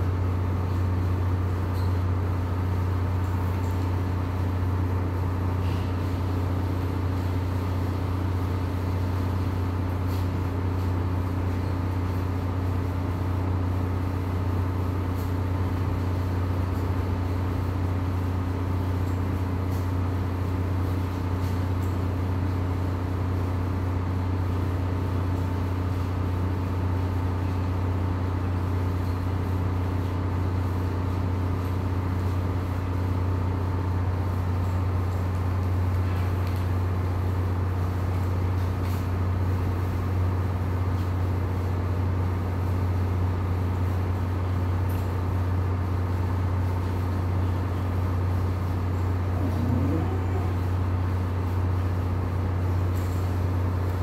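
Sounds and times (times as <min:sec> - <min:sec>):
machine humming: 0:46.6 - 0:53.9.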